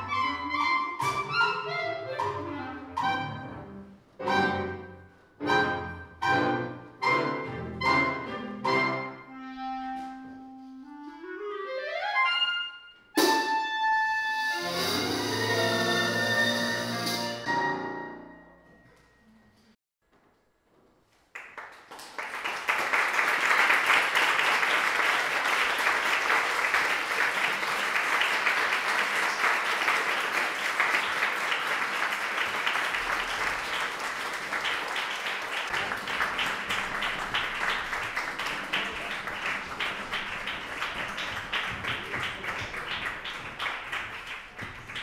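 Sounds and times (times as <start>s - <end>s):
audience applauding: 21.3s - 45.0s.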